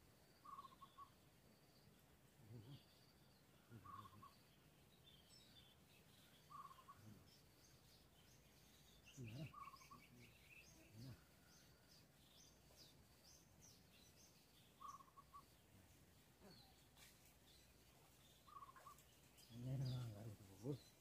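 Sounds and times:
bird chirping: 0.0s - 21.0s
bird trill: 0.4s - 1.2s, 3.8s - 4.5s, 5.2s - 7.4s, 8.3s - 11.2s, 13.3s - 15.6s, 18.4s - 20.1s.

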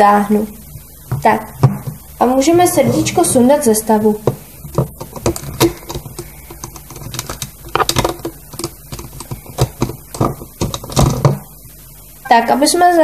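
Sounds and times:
fingertips tapping plastic: 1.0s - 11.5s
loom bands clicking off pegs: 4.2s - 11.5s.

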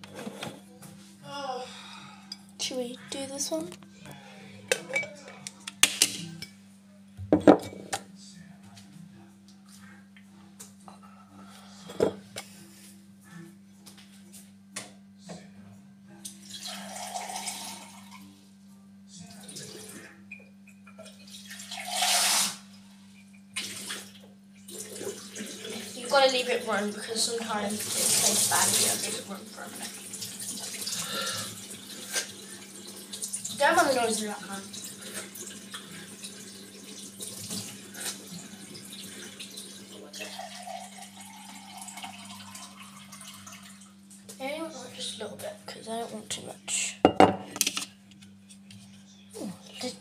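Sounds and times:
tap water gushing into sink: 16.4s - 18.1s, 20.9s - 22.7s, 23.6s - 44.5s.

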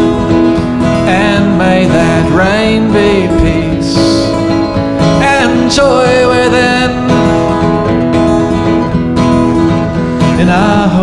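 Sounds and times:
acoustic guitars playing folk song: 0.0s - 11.0s
man singing: 0.6s - 7.7s, 10.1s - 11.0s.

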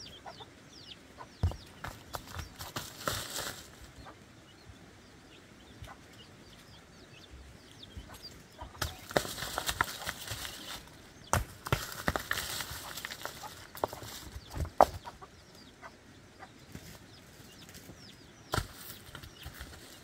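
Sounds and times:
footsteps crunching through dry leaves: 1.9s - 3.9s, 8.8s - 14.4s.

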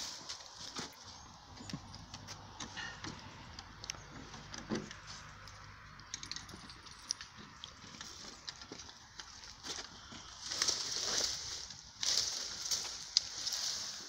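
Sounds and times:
horse stepping on dry leaves: 0.0s - 1.5s, 7.9s - 14.0s.

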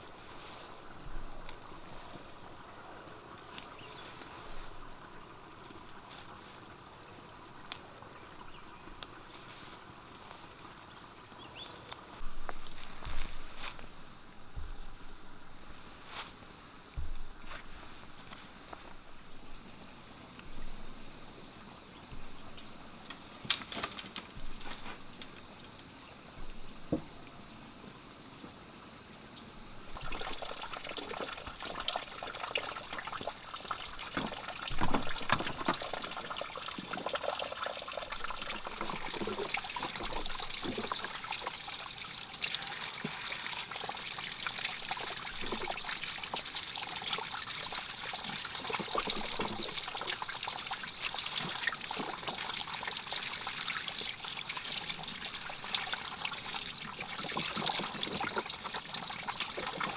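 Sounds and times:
water pouring into a trough: 29.9s - 59.9s
hands rinsing greens in water: 30.0s - 59.9s.

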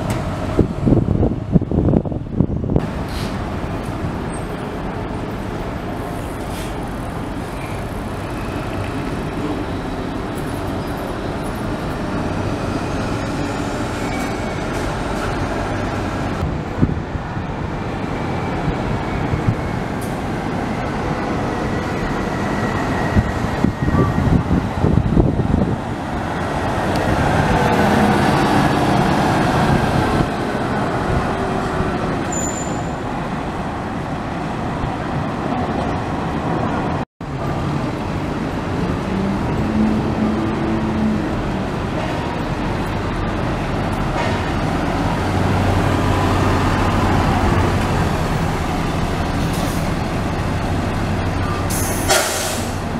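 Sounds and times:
diesel coach pulling away: 37.6s - 52.9s.

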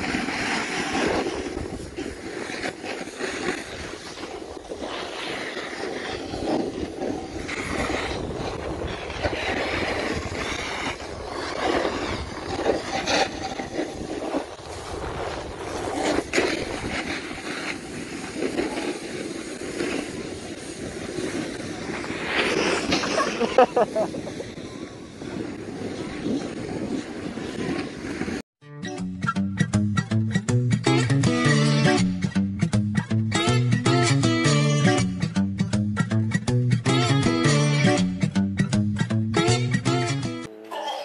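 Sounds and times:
skis scraping on snow: 0.0s - 28.4s
wind buffeting microphone: 0.0s - 28.4s.

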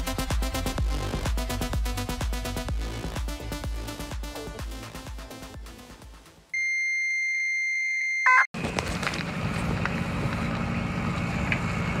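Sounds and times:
high test-tone beep: 6.6s - 8.5s
atv engine running: 8.6s - 12.0s.

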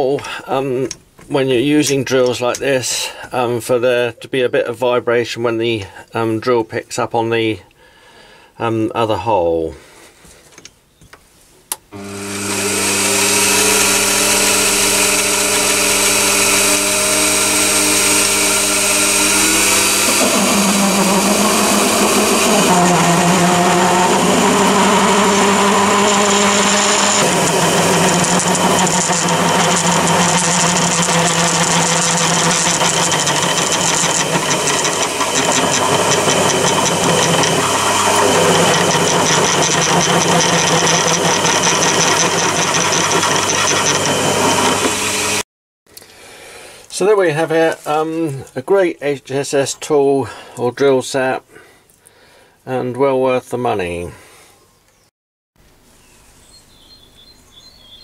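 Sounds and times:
drill vibrating in metal: 12.0s - 45.4s
lathe motor whine: 12.0s - 45.4s.

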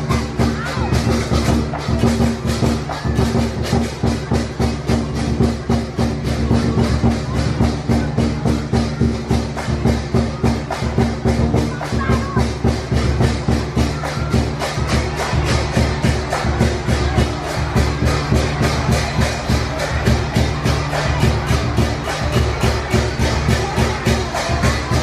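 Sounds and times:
clashing cymbals: 0.0s - 25.0s
drum beating fast rhythm: 0.0s - 25.0s.

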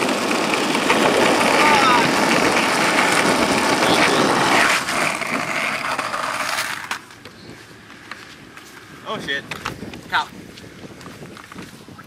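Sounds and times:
skateboard clacks: 0.0s - 8.2s
skateboard wheels rolling on asphalt: 0.0s - 12.0s.

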